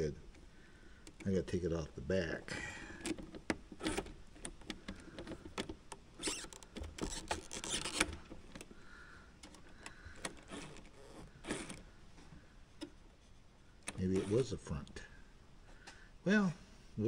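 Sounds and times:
screwdriver and plastic parts clicking: 3.0 - 8.7.

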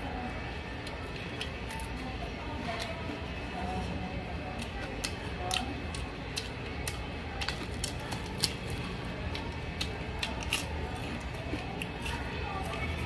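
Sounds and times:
crunchy chewing: 4.5 - 13.0.

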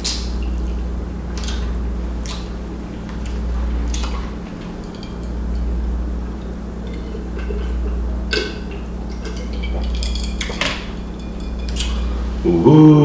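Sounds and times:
steady low hum: 0.0 - 13.0
glass clicks: 6.8 - 12.1.

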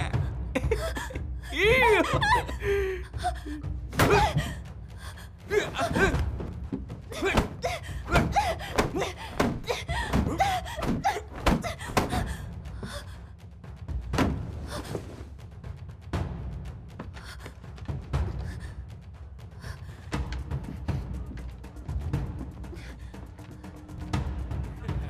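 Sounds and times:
people crying out and grunting: 0.0 - 13.1.

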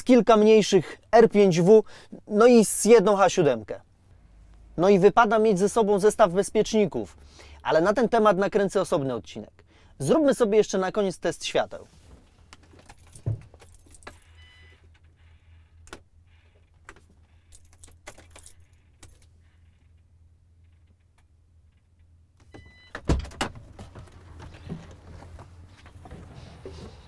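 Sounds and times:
truck door clunk and clatter: 22.6 - 27.0.

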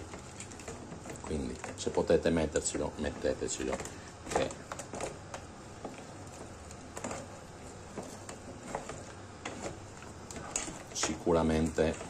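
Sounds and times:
sauce simmering in a pan: 0.0 - 12.0.

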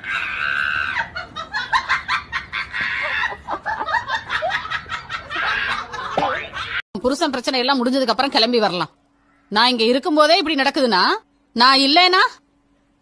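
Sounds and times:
person cackling laughter: 0.0 - 6.8.

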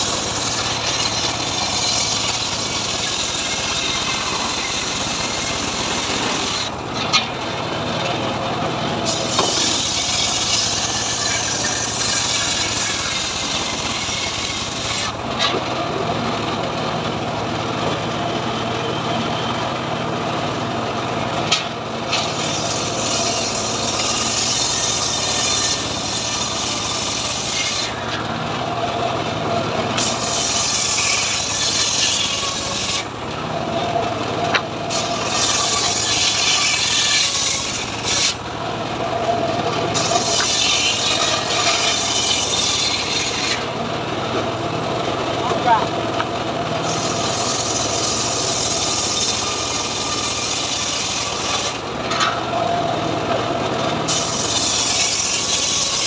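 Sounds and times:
circular saw cutting wood: 0.0 - 16.2, 21.5 - 29.1, 29.9 - 33.9, 34.5 - 43.8, 46.8 - 56.0
saw blade spinning free: 9.1 - 15.2, 39.9 - 43.7, 54.1 - 56.0.

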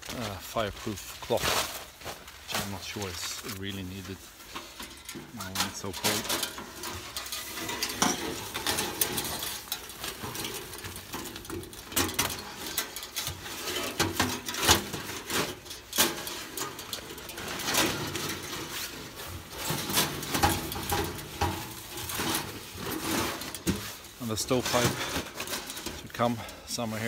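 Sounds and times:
metal camp stove clinks and knocks: 4.6 - 24.0.

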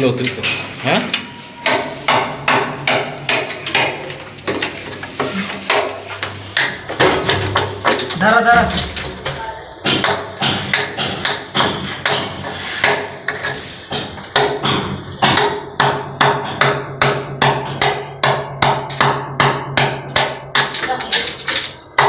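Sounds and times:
hammer striking chisel into brick: 1.6 - 4.0, 5.7 - 8.2, 9.8 - 20.9.

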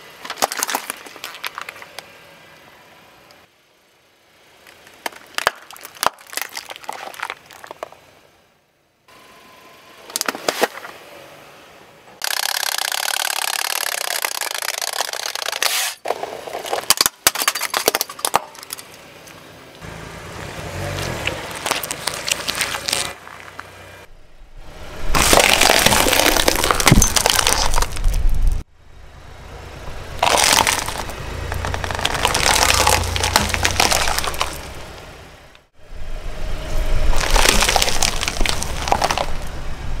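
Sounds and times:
tyre crushing plastic and candy: 0.2 - 2.1, 4.9 - 8.0, 12.2 - 19.0, 21.2 - 23.2, 25.1 - 28.6, 30.2 - 34.8, 37.1 - 39.5
liquid container bursting: 25.1 - 28.1, 30.2 - 34.7.

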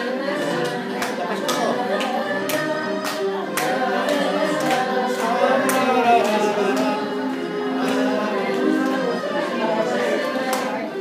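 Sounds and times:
electronic keyboard polka tune: 0.0 - 11.0.

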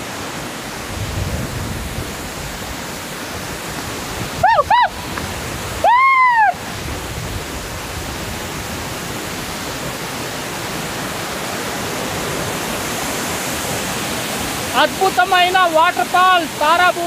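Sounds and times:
waterfall rushing: 0.0 - 17.0
high rising and falling whoop: 4.3 - 5.0, 5.7 - 6.7.

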